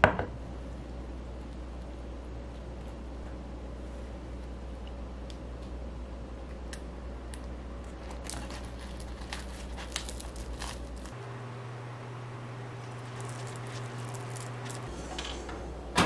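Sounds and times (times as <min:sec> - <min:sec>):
steady low hum: 0:00.0 - 0:16.0
pastry crinkling and crackling: 0:06.5 - 0:14.9.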